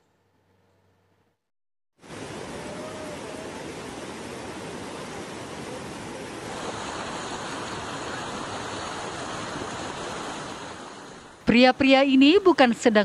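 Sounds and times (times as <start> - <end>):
river rapids rushing: 2.0 - 11.4.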